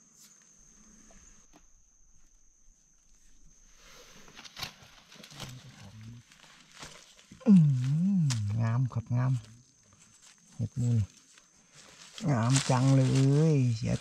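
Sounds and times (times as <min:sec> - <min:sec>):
dry leaves rustling and crackling: 0:04.4 - 0:08.6, 0:09.5 - 0:14.0.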